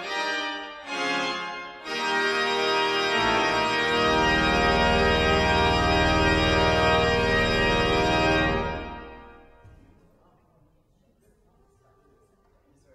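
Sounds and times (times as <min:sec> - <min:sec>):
pipe organ chord: 0:00.0 - 0:09.6
deep bass organ note: 0:02.3 - 0:09.4.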